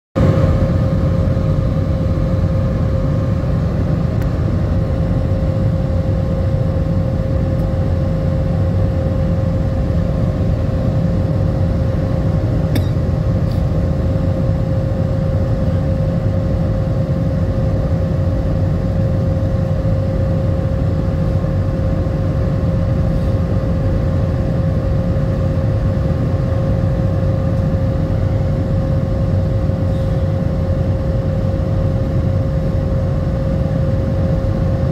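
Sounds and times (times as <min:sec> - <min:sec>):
jet engine and air rush: 0:19.3 - 0:34.9.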